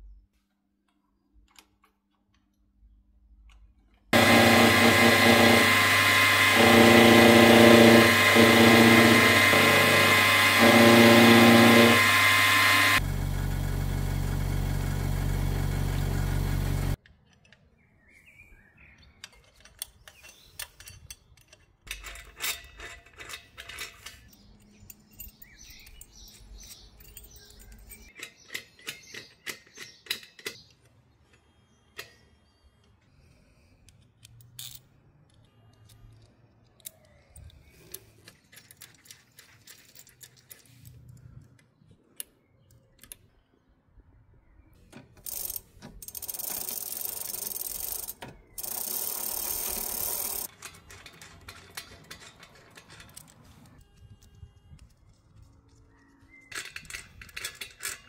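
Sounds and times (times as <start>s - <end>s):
power tool running loudly: 4.2s - 17.0s, 48.6s - 50.5s
steady machine hum: 4.2s - 17.0s.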